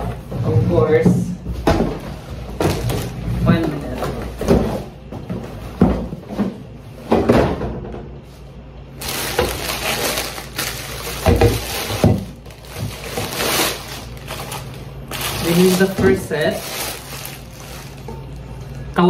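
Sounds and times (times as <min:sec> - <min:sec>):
plastic wrap crinkling: 0:08.9 - 0:18.9.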